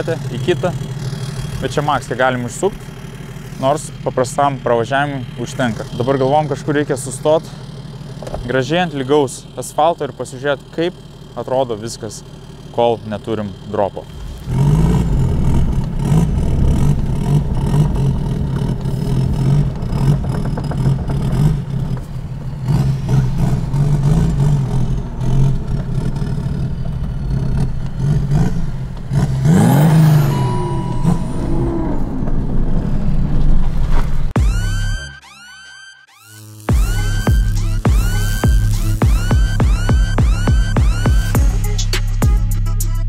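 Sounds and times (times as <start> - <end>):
diesel car engine running: 0.0 - 35.4, 36.7 - 43.0
engine revving: 0.0 - 35.4, 36.1 - 43.0.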